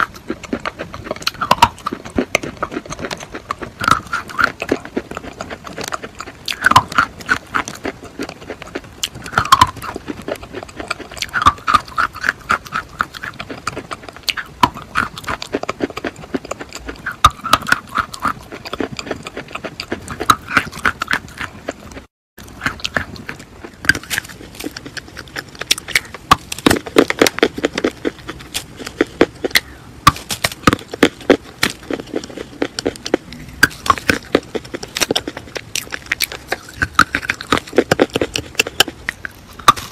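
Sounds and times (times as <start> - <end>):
chalk crunching in mouth: 0.0 - 39.9.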